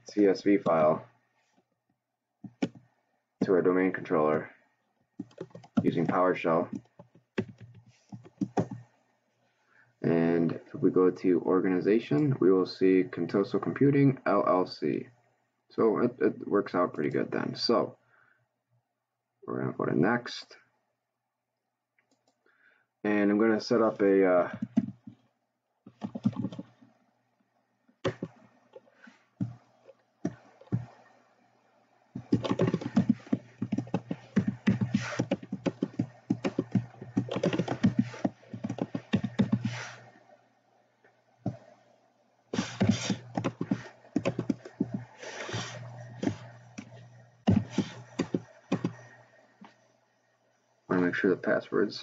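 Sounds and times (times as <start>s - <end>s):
typing on a keyboard: 5.2s - 8.8s, 24.6s - 25.2s, 25.9s - 26.7s, 28.0s - 28.4s, 32.2s - 40.0s, 42.6s - 45.0s, 45.6s - 49.0s.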